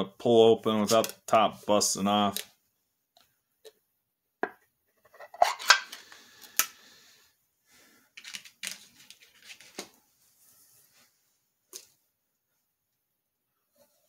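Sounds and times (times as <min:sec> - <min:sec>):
can lid tearing open: 0:05.1 - 0:06.0
can and lid clinking: 0:05.2 - 0:06.0.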